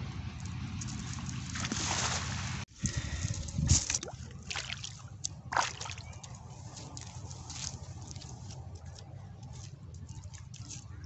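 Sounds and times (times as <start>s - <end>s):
water sloshing and splashing: 0.9s - 11.0s
cast net slapping water: 1.2s - 2.7s, 3.7s - 9.0s.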